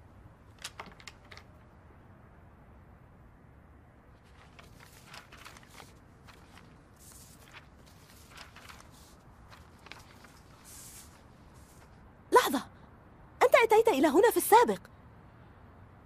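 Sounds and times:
faint rustles: 4.2 - 12.0.

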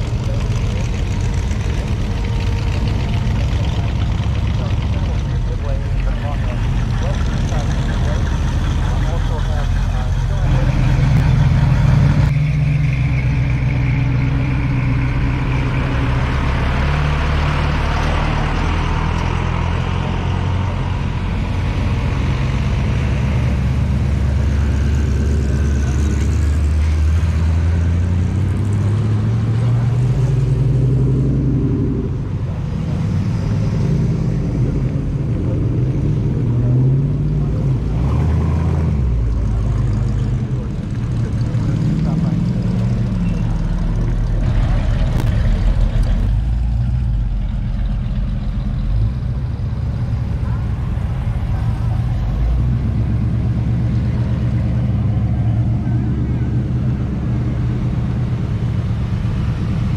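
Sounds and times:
car engines driving past: 0.0 - 59.9.

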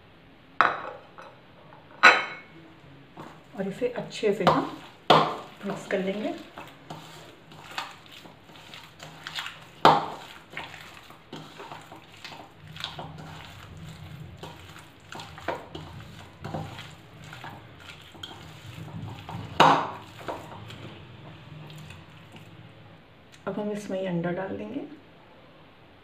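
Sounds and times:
hand squishing minced meat: 4.6 - 21.0.

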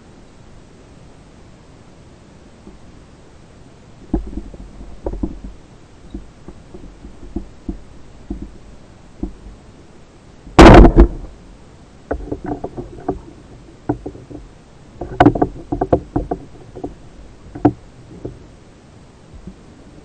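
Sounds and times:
diving gear clicks and knocks: 4.1 - 9.4, 12.1 - 18.4.

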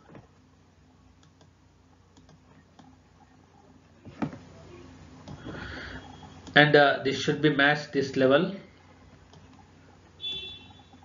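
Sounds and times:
low steady hum: 0.0 - 11.0
computer clicks: 1.2 - 3.0, 5.2 - 5.4.

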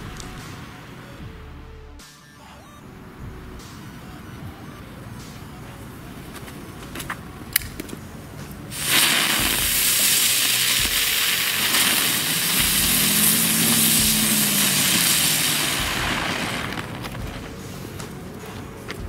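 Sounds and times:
fountain fireworks hissing sparks: 8.7 - 18.2.

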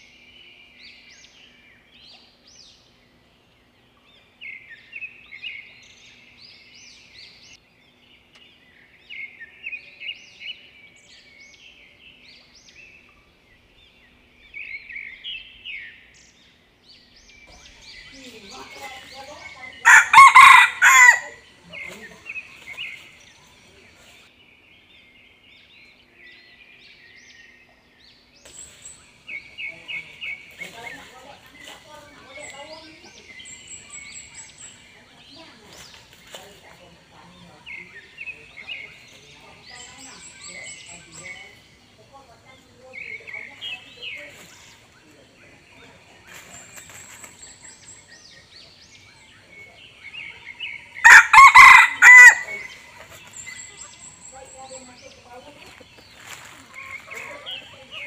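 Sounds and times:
rooster crowing: 19.8 - 21.4, 51.0 - 52.7
chicks peeping: 28.7 - 58.0.

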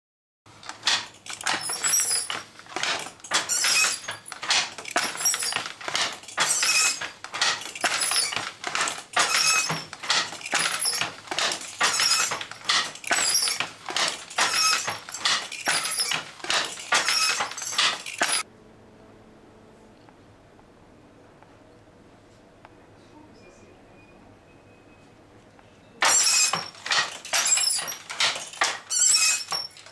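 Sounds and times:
wooden loom clattering: 0.5 - 18.5, 26.0 - 29.9.

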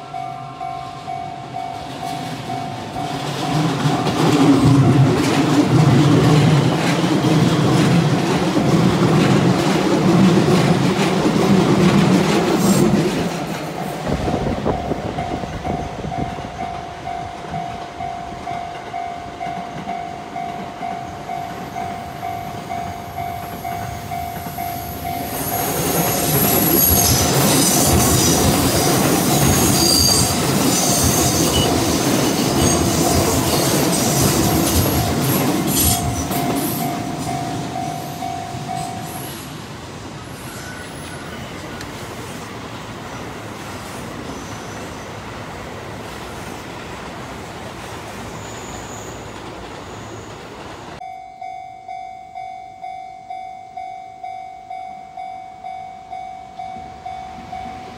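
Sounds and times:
level crossing bell ringing: 0.0 - 4.2, 34.4 - 39.2, 51.0 - 57.9
electric train rumbling past: 0.0 - 57.9
train wheel squeal: 14.6 - 17.8, 19.9 - 39.6, 40.2 - 42.5, 43.1 - 45.2, 48.0 - 50.9.

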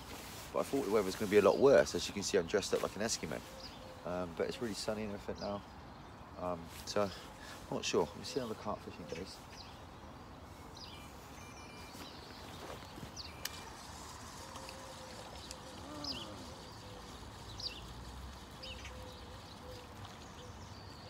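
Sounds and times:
bird chirping: 7.2 - 21.0.

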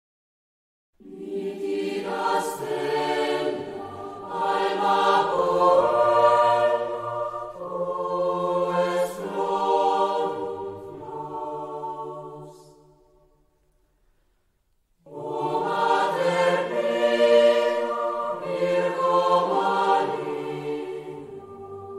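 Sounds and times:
choir singing a chant: 1.0 - 13.3, 15.0 - 21.9.

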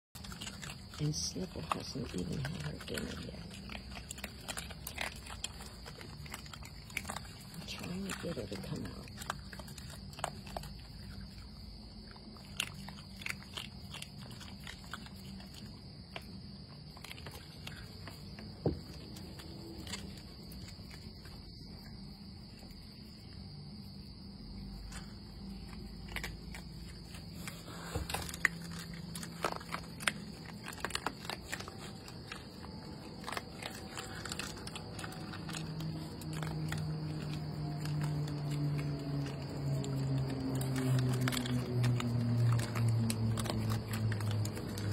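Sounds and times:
animals crunching and chewing: 0.0 - 44.9.

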